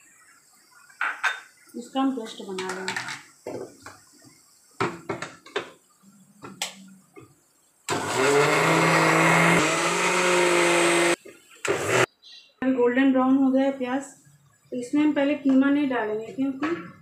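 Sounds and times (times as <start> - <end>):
mixer grinder motor running: 7.9 - 12.1.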